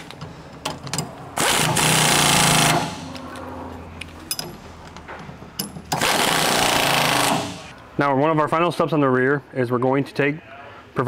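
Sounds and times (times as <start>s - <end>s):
impact wrench hammering: 1.4s - 3.2s, 5.6s - 7.7s.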